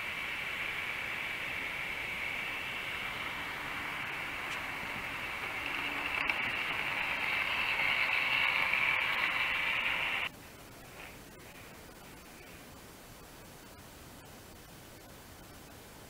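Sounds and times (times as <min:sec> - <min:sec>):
model train whirring: 0:00.0 - 0:10.3
faint hiss: 0:00.0 - 0:16.0.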